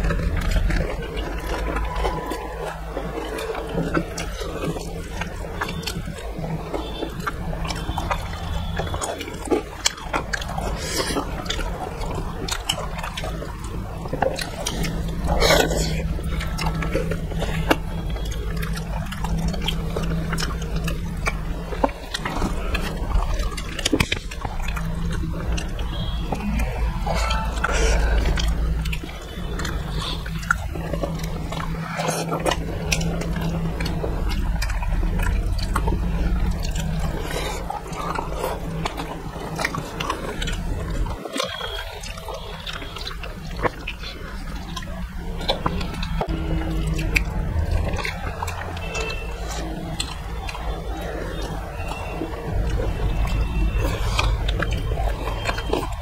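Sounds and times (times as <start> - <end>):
low steady hum: 0.0 - 56.0
wet chewing and smacking: 0.0 - 56.0.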